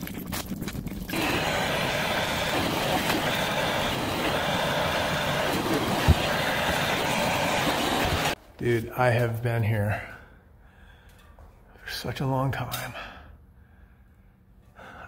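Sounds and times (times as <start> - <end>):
gas torch hissing: 1.1 - 8.4.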